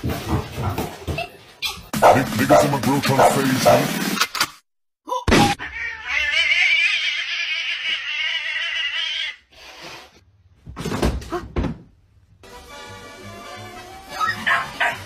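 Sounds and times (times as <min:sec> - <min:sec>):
cat yowling: 0:05.6 - 0:09.4.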